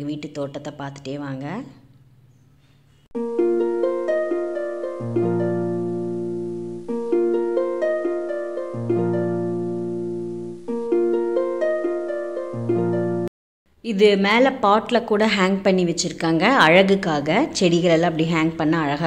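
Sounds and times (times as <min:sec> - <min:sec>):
plucked-string arpeggios: 0:03.2 - 0:13.3
low bass notes: 0:03.4 - 0:13.3.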